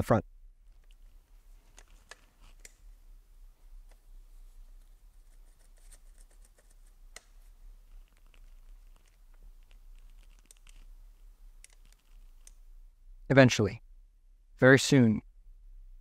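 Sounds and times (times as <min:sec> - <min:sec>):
screw clicking and scraping: 0:11.6 - 0:12.6.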